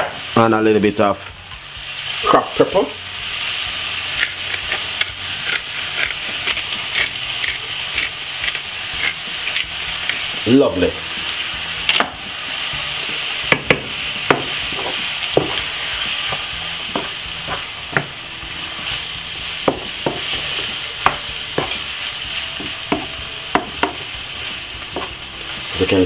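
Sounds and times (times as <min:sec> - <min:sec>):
vegetables sizzling in a frying pan: 0:00.0 - 0:26.0.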